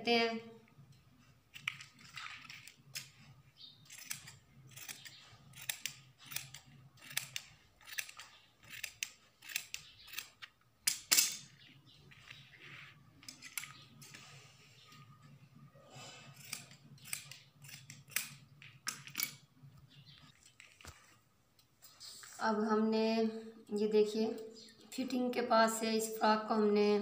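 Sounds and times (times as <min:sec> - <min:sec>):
shears snipping fabric: 0:01.5 - 0:10.4, 0:16.3 - 0:18.4.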